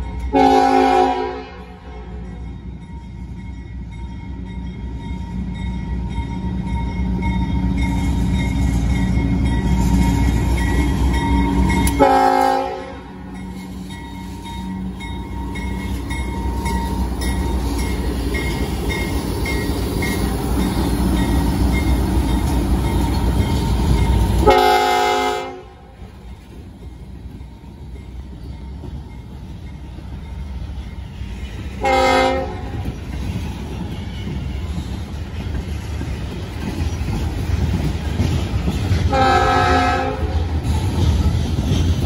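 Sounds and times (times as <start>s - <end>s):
locomotive rumble passing: 0.0s - 42.0s
locomotive air horn blasts: 0.3s - 2.2s, 11.9s - 13.2s, 24.4s - 25.9s, 31.8s - 32.7s, 39.1s - 40.4s.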